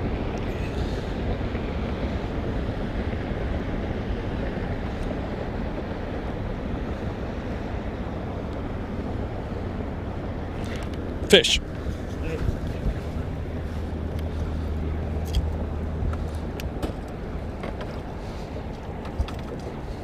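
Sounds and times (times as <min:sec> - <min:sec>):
wind noise on microphone: 0:00.0 - 0:20.0.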